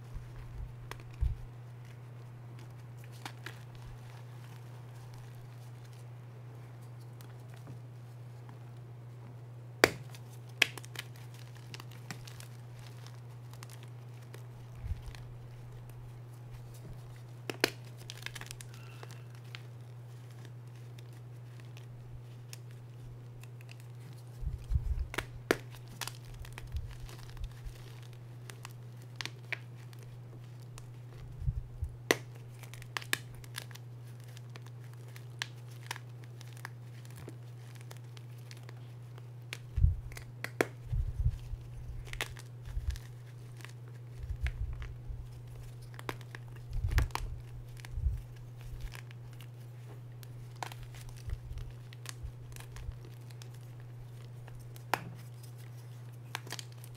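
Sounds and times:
steady low hum: 0:00.0 - 0:56.9
chalk crunching and crackling: 0:09.8 - 0:56.9.

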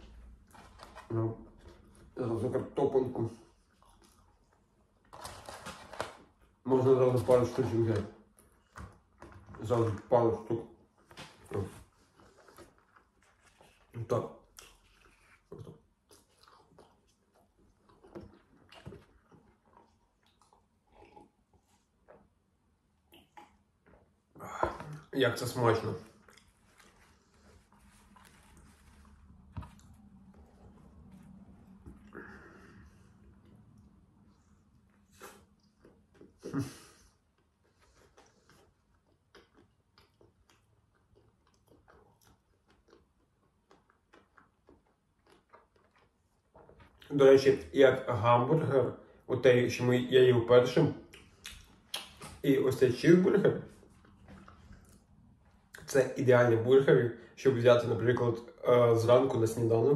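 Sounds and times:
faint chewing: 0:03.2 - 0:06.6, 0:10.8 - 0:47.7, 0:51.0 - 0:52.5, 0:53.5 - 0:56.0.

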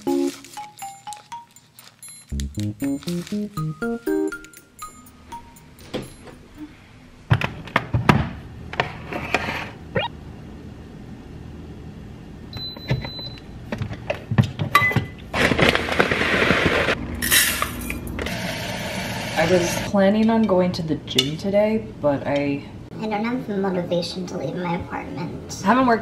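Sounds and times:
rice cooker beep: 0:12.5 - 0:13.4.

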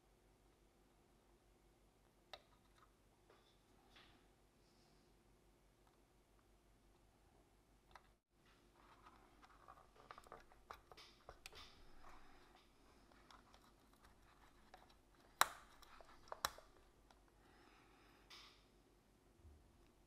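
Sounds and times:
fingers handling small parts: 0:07.9 - 0:17.3.

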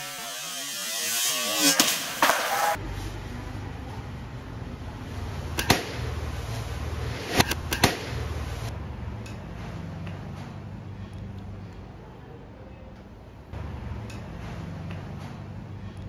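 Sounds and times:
arrows striking target: 0:01.6 - 0:03.1, 0:05.5 - 0:08.7
steady low hum: 0:02.8 - 0:16.0
bowstring snapping: 0:05.6 - 0:06.3, 0:07.0 - 0:08.7.

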